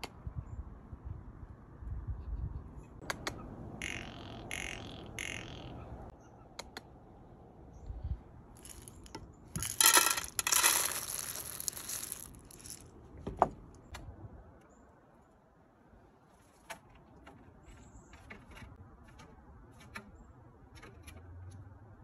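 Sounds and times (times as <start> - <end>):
seeds poured into metal lid: 8.6 - 12.8.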